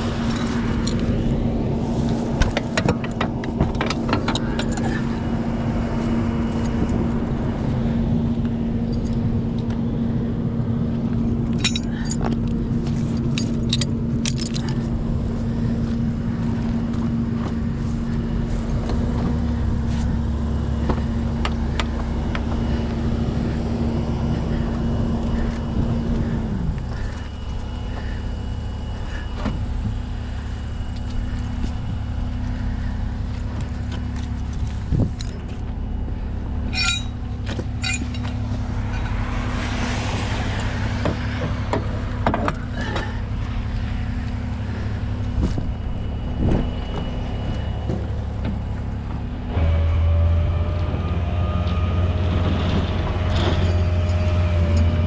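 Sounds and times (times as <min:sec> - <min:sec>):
diesel truck engine idling: 0:00.0 - 0:55.0
tow chain and hooks clinking: 0:11.2 - 0:14.9, 0:36.6 - 0:39.2, 0:53.2 - 0:55.0.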